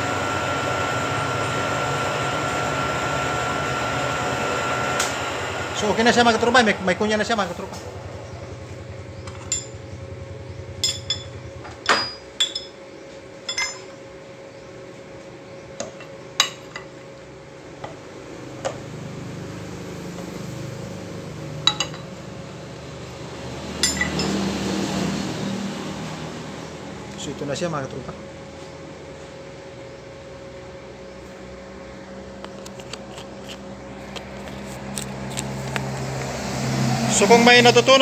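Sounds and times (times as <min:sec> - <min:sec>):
steady low hum: 0:00.0 - 0:38.0
steel parts clinking: 0:10.8 - 0:12.8, 0:13.5 - 0:13.9, 0:23.8 - 0:24.4.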